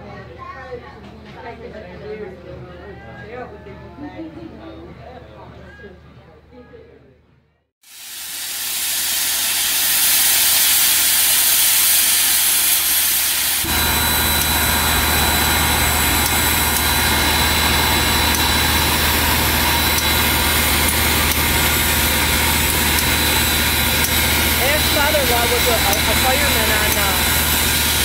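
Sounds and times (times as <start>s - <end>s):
steam locomotive hissing: 7.8s - 28.0s
low hum: 9.0s - 28.0s.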